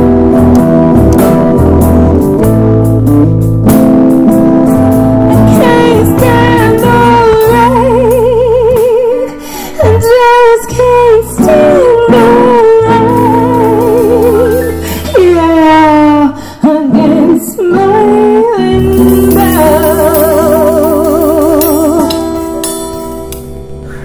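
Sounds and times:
live band playing: 0.0s - 16.2s, 17.0s - 24.0s
woman singing with vibrato: 5.3s - 22.6s.

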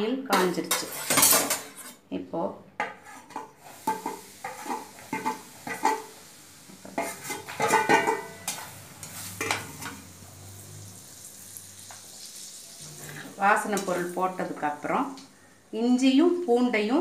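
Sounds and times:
metal spoon scraping steel plate: 0.4s - 2.0s, 7.0s - 10.0s
ladle stirring pan: 2.8s - 10.9s, 11.5s - 14.7s
spices sizzling in oil: 2.9s - 17.0s.

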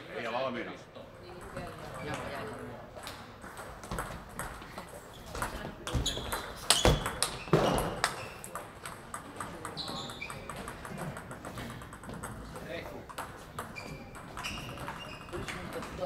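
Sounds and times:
distant table tennis clicks: 6.2s - 16.0s
table tennis ball clicking: 8.0s - 16.0s.

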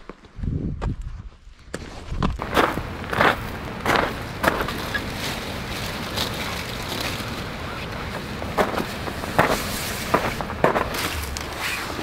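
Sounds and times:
footsteps on gravel: 0.0s - 12.0s
steady background hiss: 2.4s - 12.0s.

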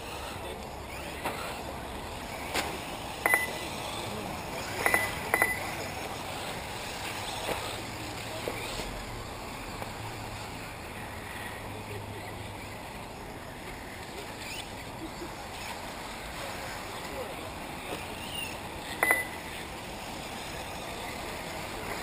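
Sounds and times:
rc buggies racing: 0.0s - 22.0s
sharp ringing clinks: 3.3s - 3.6s, 4.9s - 5.7s, 19.0s - 19.4s.

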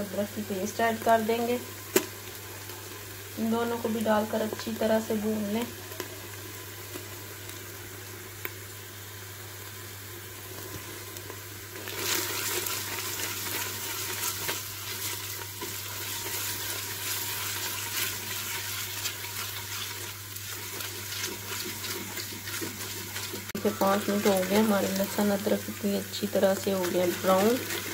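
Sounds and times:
onions frying in hot oil: 0.0s - 27.9s
spoon stirring: 16.2s - 25.5s.

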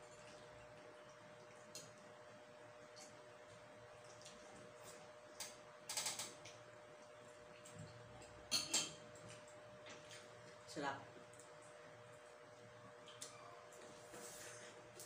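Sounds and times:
faint steady hum: 0.0s - 15.0s
crackling clicks of food handled: 5.2s - 6.7s.

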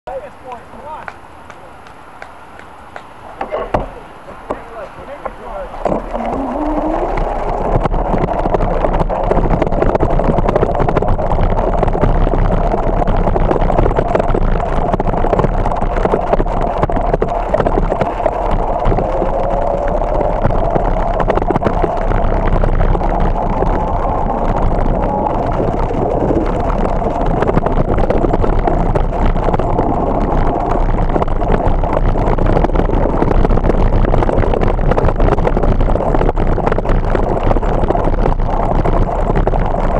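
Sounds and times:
wind on microphone: 3.2s - 39.9s
bicycle rolling over gravel: 4.8s - 39.9s.

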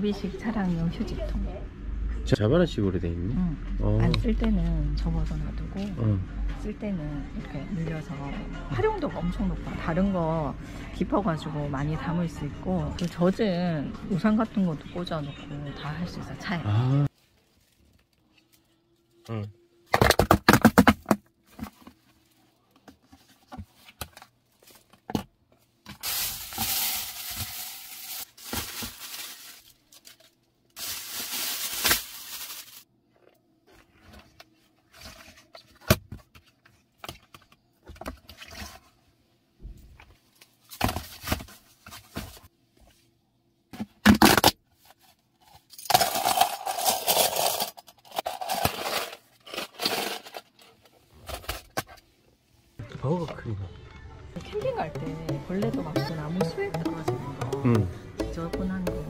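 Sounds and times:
plastic scraping and rustling: 19.9s - 39.0s, 43.8s - 52.1s.

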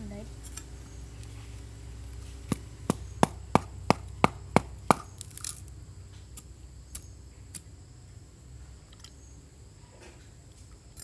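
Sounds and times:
knife chopping bamboo: 2.4s - 5.4s.

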